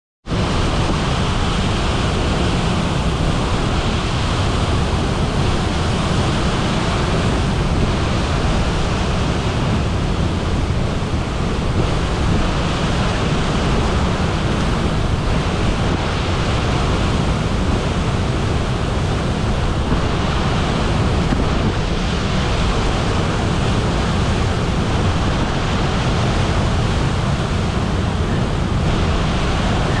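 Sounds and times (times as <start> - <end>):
waterfall rushing into pool: 0.3 - 30.0.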